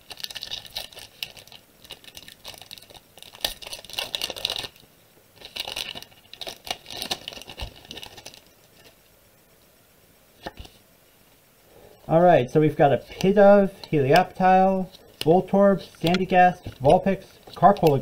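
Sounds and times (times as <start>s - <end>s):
foil wrapper crinkling and tearing: 0.0s - 4.8s, 5.4s - 9.0s, 13.0s - 18.0s.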